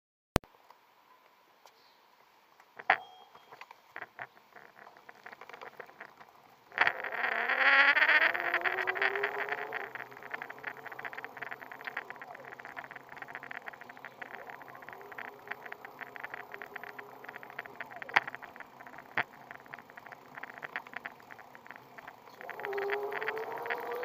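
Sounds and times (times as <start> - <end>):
dense rattle: 4.0 - 24.0
electric motor whine rising: 6.8 - 24.0.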